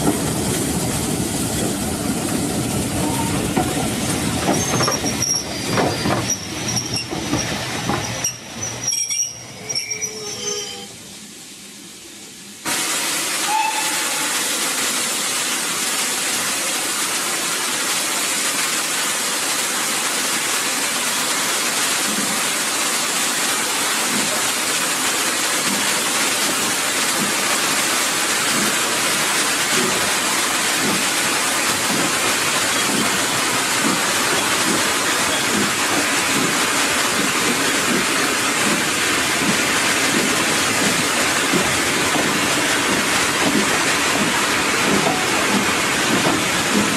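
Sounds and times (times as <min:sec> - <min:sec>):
steam train hissing: 0:00.0 - 0:46.9
faint regular train beat: 0:25.5 - 0:46.9.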